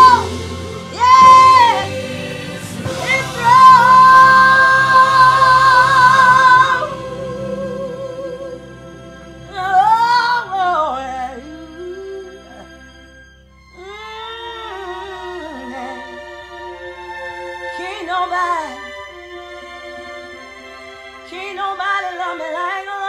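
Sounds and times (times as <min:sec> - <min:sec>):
woman singing gospel: 0:00.0 - 0:08.8, 0:09.5 - 0:12.6, 0:13.8 - 0:16.2.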